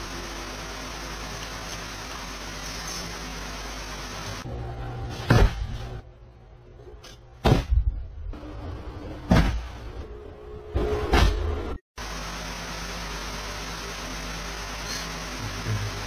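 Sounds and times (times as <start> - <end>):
steady hiss: 0.0 - 4.4.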